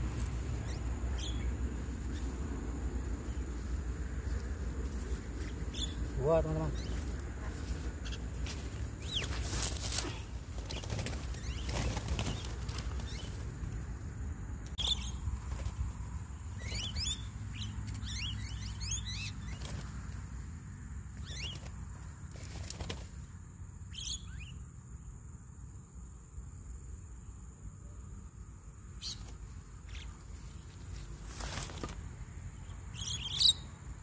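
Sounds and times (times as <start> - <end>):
short bird chirping calls: 5.4 - 7.1, 14.8 - 15.2, 16.5 - 19.7, 23.9 - 24.6, 32.9 - 33.8
bird wings flapping: 6.8 - 13.8, 15.3 - 17.1, 19.4 - 20.2, 21.3 - 23.2, 31.1 - 32.1.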